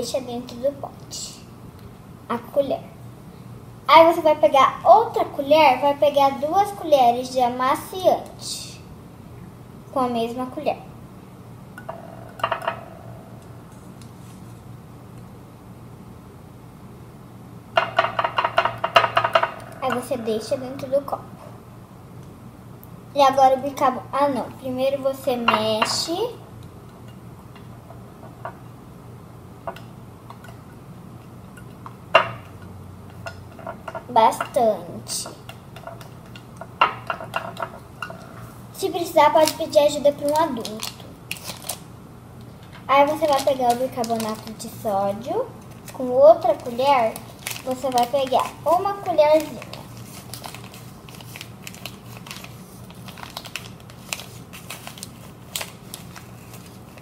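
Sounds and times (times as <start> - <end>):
plastic bag crinkling: 39.3 - 41.9, 42.9 - 44.8, 45.7 - 57.0.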